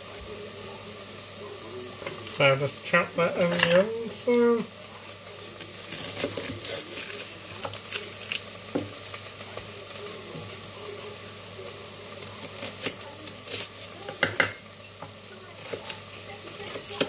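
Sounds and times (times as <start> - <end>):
food sizzling in a pan: 0.0 - 17.0
knife tapping on chopping board: 14.1 - 14.6.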